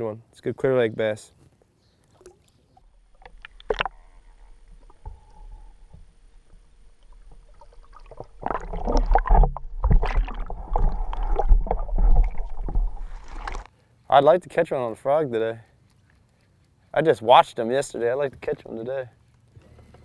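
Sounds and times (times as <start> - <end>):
churning underwater water noise: 2.2 - 13.7.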